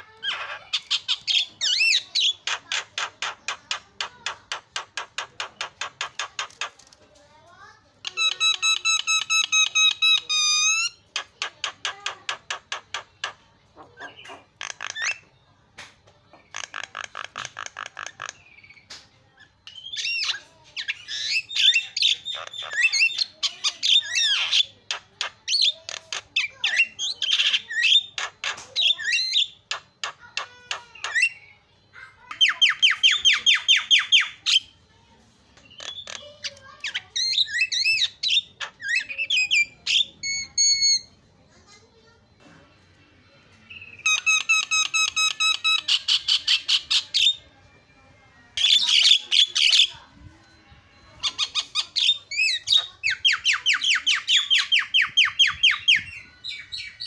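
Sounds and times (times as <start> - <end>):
bird singing varied song: 0.0 - 42.2, 42.8 - 57.0.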